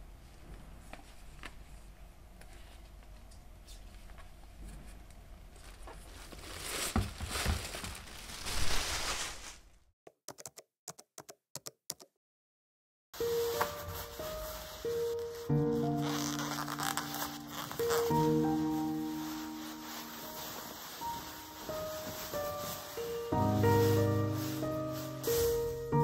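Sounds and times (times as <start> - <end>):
rustling: 3.6 - 9.9, 13.2 - 26.0.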